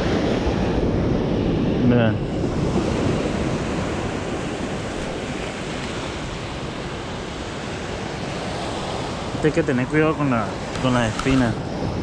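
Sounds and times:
sea surf washing: 0.0 - 12.0
wind on microphone: 0.0 - 12.0.

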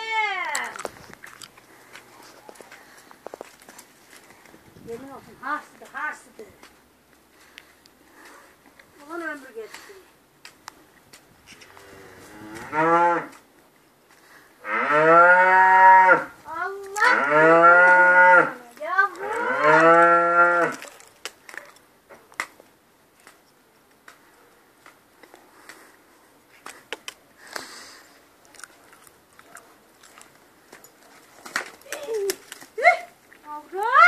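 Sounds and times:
calf mooing: 14.6 - 16.3, 17.0 - 20.8.

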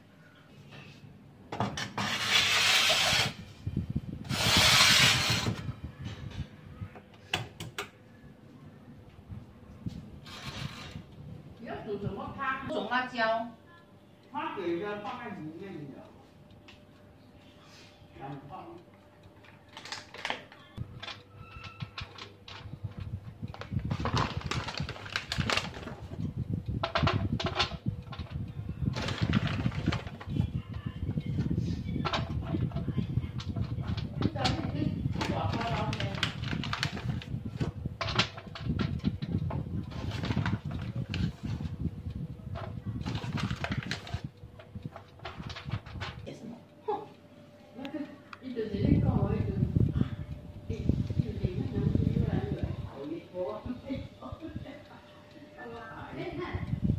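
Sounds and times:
metal tray scraping on oven rack: 1.8 - 3.5
oven rack and baking tray rattling: 19.7 - 41.7
faint steady hum: 37.2 - 56.9.

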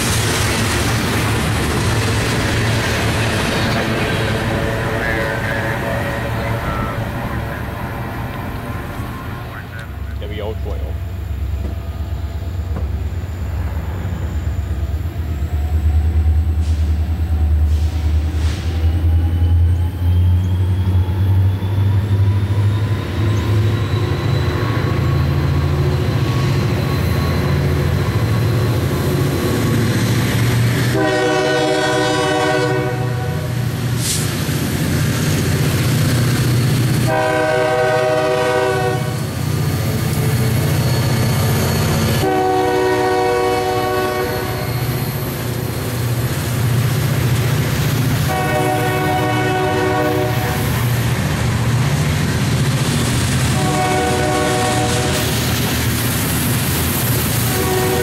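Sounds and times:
diesel locomotives rumbling: 0.0 - 58.0
locomotive horn blasts: 4.3 - 7.2, 30.9 - 33.5, 37.1 - 39.2, 42.2 - 44.7, 48.2 - 50.6, 53.6 - 55.2, 57.4 - 58.0.

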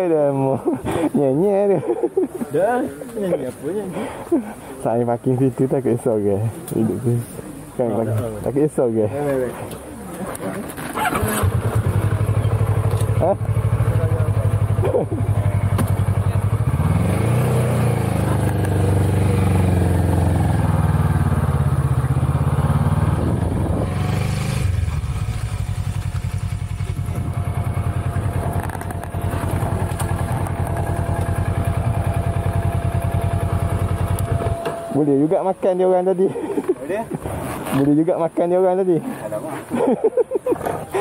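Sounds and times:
motorcycle engine running: 10.7 - 35.6.

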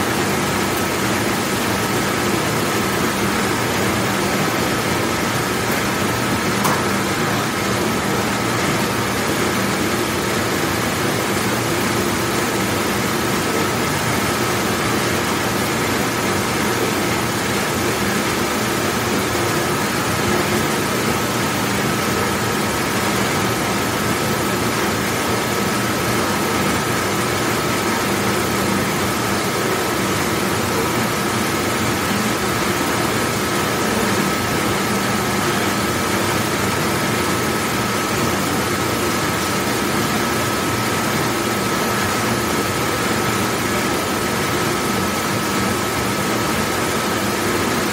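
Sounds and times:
dishwashing machine rushing: 0.0 - 47.9.

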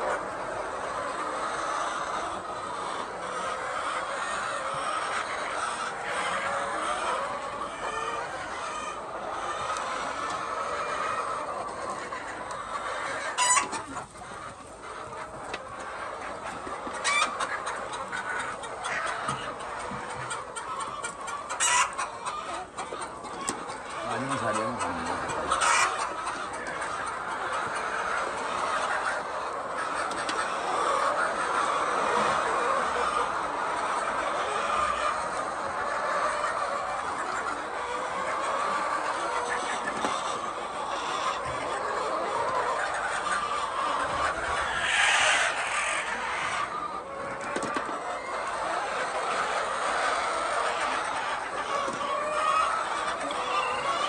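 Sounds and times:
hens clucking: 0.0 - 54.0
single hen calls: 0.0 - 54.0.

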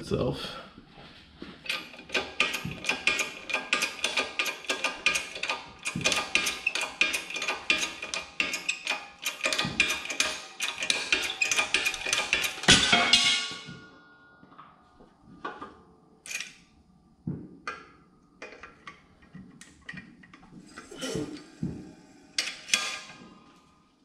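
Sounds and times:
metallic clinks and knocks: 1.6 - 14.4.

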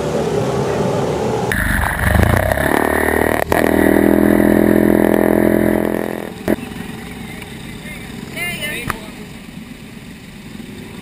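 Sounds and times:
outdoor background noise: 0.0 - 11.0
small boat motor running: 1.5 - 11.0.

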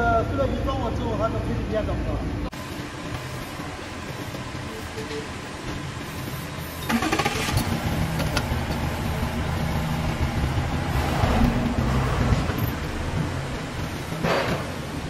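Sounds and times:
machine humming: 2.6 - 15.0.

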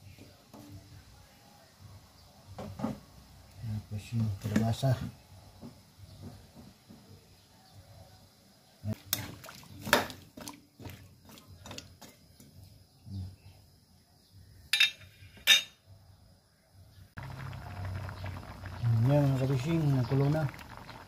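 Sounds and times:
liquid bubbling: 17.2 - 21.0.

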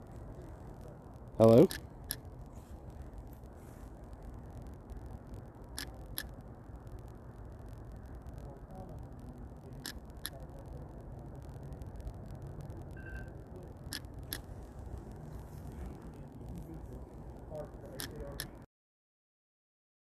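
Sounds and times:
faint clicks: 0.6 - 18.7.

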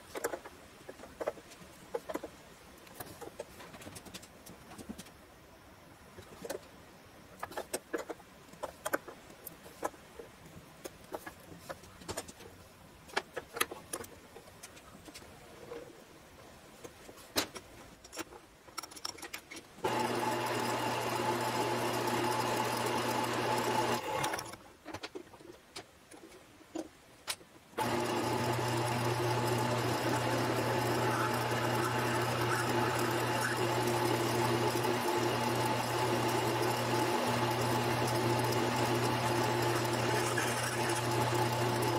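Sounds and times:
lathe motor humming: 19.8 - 24.5, 27.8 - 41.9
drill boring into metal: 27.8 - 41.9.

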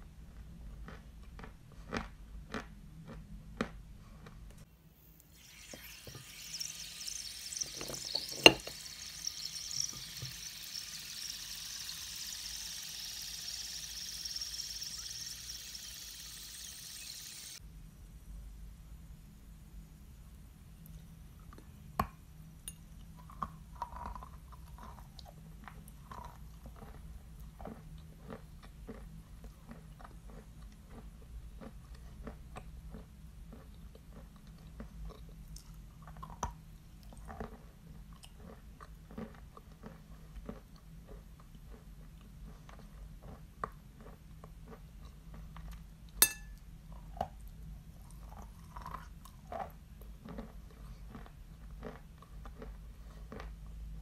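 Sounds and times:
chalk crunching being chewed: 0.3 - 4.4, 23.1 - 45.9, 47.0 - 53.8.

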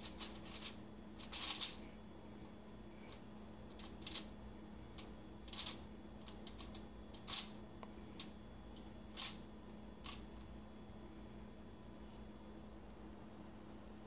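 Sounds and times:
aluminium foil crinkling: 0.0 - 1.8.

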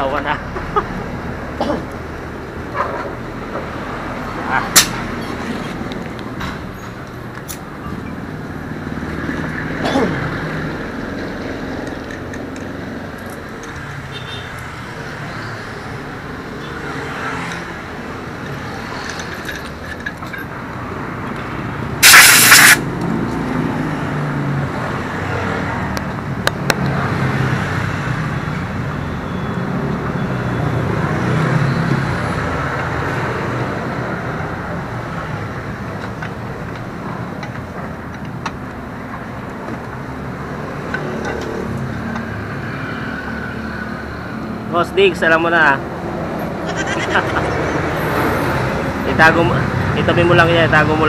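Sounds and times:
street traffic rumble: 0.0 - 51.0
sharp loud hiss: 22.0 - 22.9.

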